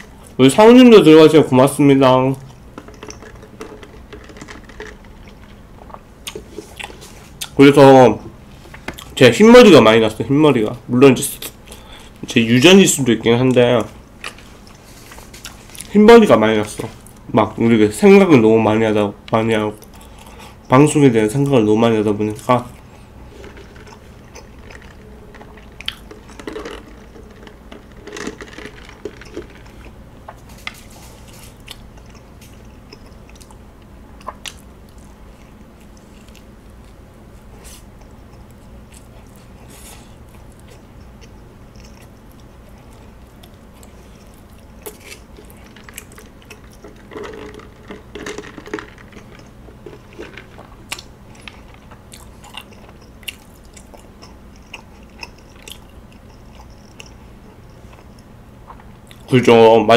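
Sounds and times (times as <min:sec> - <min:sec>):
toast crunching while chewed: 0:22.9 - 0:33.6.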